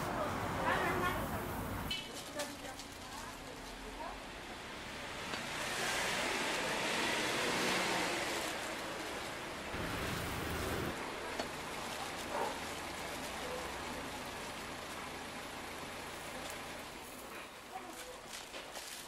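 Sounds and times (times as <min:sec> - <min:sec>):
oil sizzling and crackling: 0:04.8 - 0:17.4.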